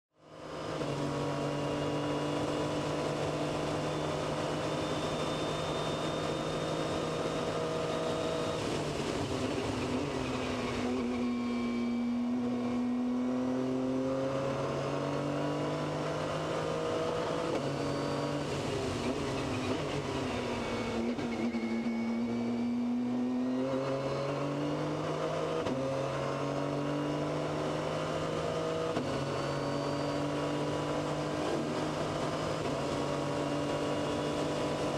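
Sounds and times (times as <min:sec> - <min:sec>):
race car engine downshifting: 0:00.5 - 0:34.9.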